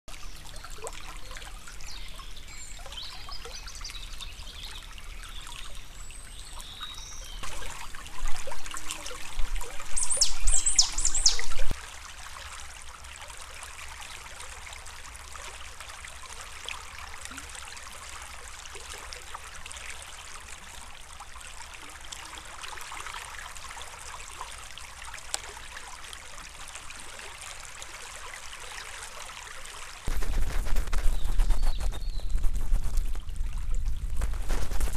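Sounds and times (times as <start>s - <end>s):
stream trickling: 0.1s - 34.9s
high falling chirps: 10.0s - 11.7s.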